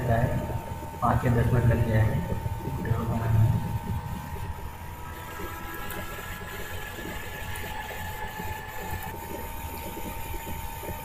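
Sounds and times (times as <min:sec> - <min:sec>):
machine hum with low rumble: 0:00.0 - 0:11.0
thin steady whine: 0:00.0 - 0:11.0.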